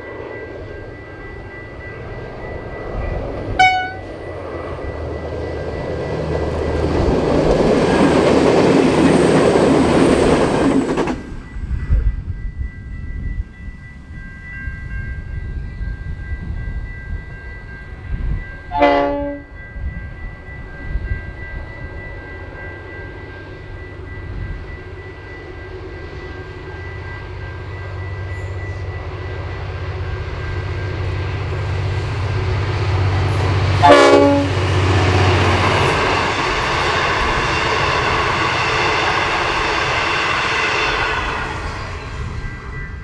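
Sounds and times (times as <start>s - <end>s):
carriages rattling over rails: 0.0s - 11.7s
diesel locomotive engine drone: 0.0s - 43.0s.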